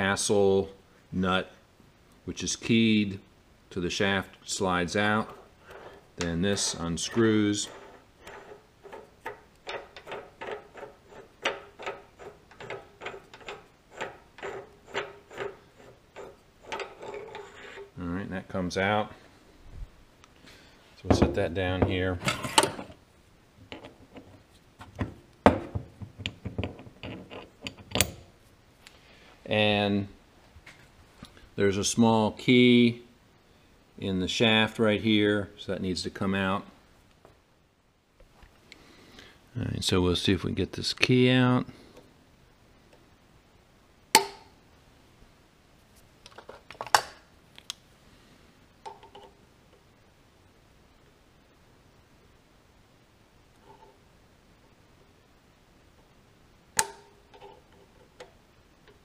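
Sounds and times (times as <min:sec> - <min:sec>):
pliers clicking and scraping on metal: 0:06.2 - 0:17.9
metal parts knocking on wooden bench: 0:23.7 - 0:28.2.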